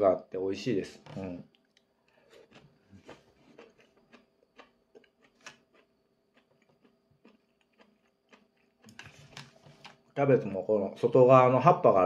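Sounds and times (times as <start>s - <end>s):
faint steady hum: 0.0s - 12.0s
man chewing food: 1.5s - 10.1s.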